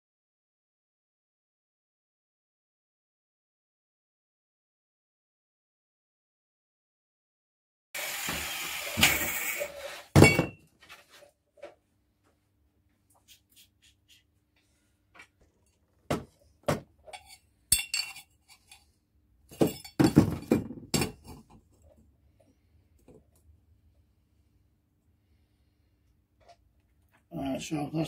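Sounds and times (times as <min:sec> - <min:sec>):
angle grinder cutting: 0:08.0 - 0:10.1
metallic clinks and knocks: 0:17.0 - 0:18.9, 0:19.5 - 0:21.5.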